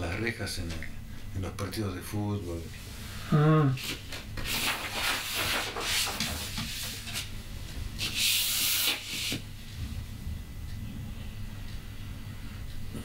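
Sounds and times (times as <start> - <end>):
drawing paper rustling: 3.8 - 7.3.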